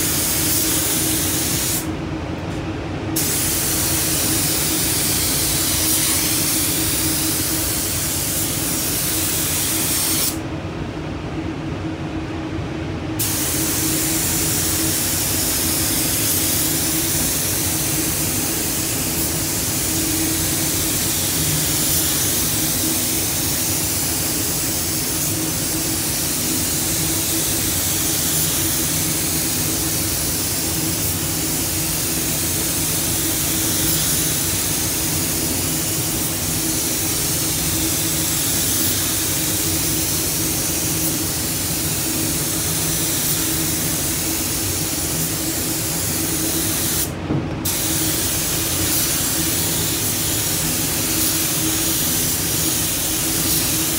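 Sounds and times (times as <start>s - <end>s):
paint spray gun hissing: 0.0s - 1.9s, 3.2s - 10.4s, 13.2s - 53.9s
spray booth hum: 0.0s - 1.9s, 2.5s - 10.4s, 13.2s - 53.9s.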